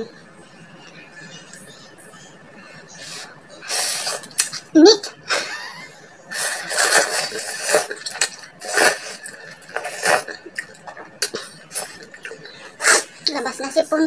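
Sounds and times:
noisy sniffs and breaths: 0.2s - 4.6s, 5.2s - 13.3s
person slurping food: 6.3s - 13.1s.

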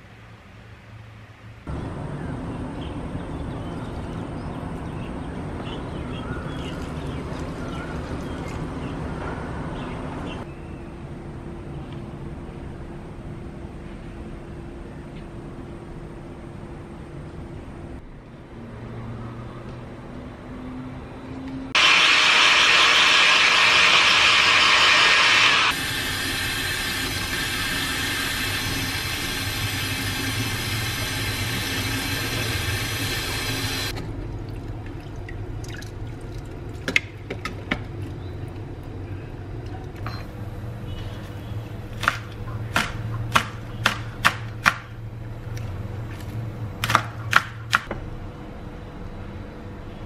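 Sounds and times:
hair dryer blowing: 21.8s - 33.9s
knife chopping on wooden board: 42.0s - 44.9s, 46.8s - 48.0s.

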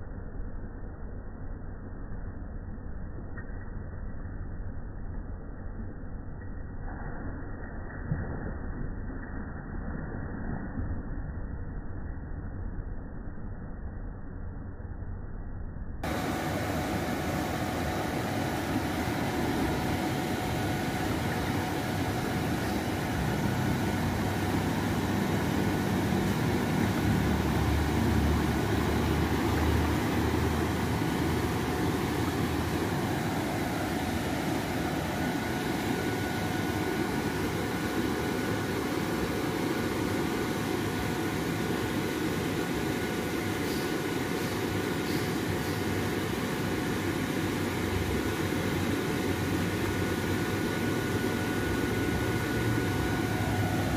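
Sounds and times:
faint steady hum: 0.0s - 53.9s
water rushing through culvert: 21.0s - 33.0s.

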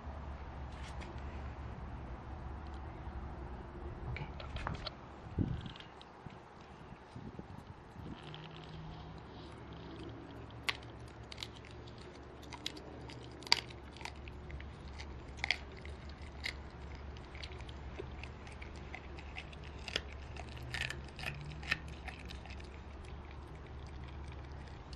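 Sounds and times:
dog chewing bone: 7.5s - 24.9s.

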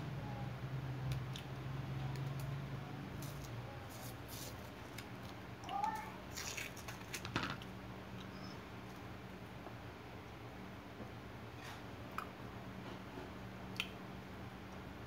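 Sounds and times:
steady low hum: 0.0s - 15.0s
wet mouth smacks and clicks: 13.7s - 14.0s.

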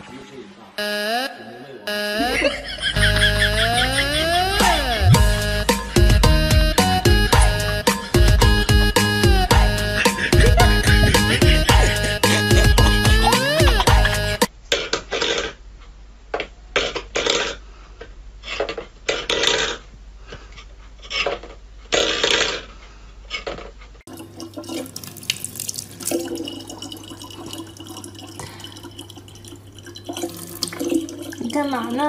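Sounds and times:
tap water running into bottle: 24.1s - 32.0s.

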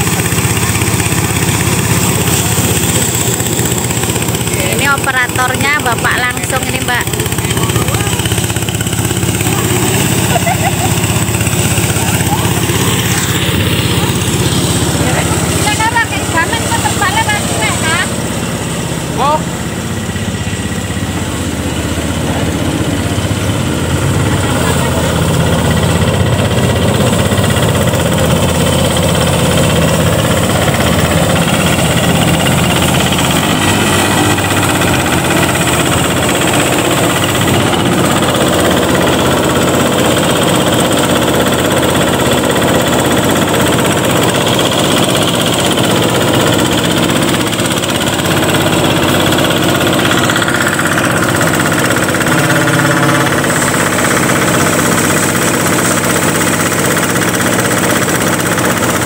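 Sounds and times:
thresher engine knocking: 0.0s - 59.0s.

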